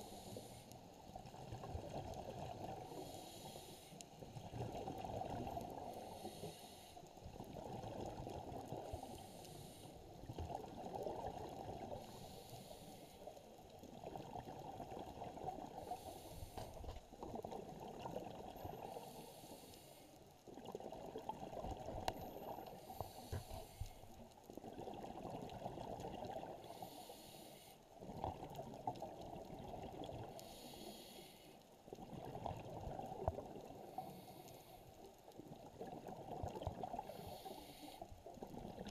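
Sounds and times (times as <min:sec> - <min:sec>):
diver breathing through regulator: 0:00.0 - 0:00.7, 0:02.9 - 0:04.0, 0:05.9 - 0:07.1, 0:08.8 - 0:10.0, 0:12.0 - 0:13.3, 0:15.8 - 0:16.8, 0:18.8 - 0:20.2, 0:22.2 - 0:24.2, 0:26.6 - 0:27.8, 0:30.3 - 0:31.6, 0:33.8 - 0:34.9, 0:37.0 - 0:38.1
exhaled bubbles hissing: 0:32.0 - 0:38.9.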